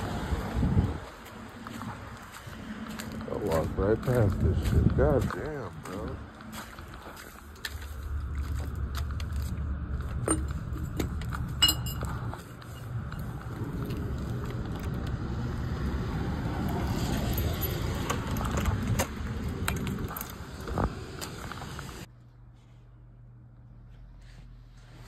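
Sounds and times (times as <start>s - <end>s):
low street rumble: 0.0s - 25.0s
footsteps: 0.3s - 15.1s
metallic jingling and clinks: 11.6s - 13.2s, 17.1s - 18.4s.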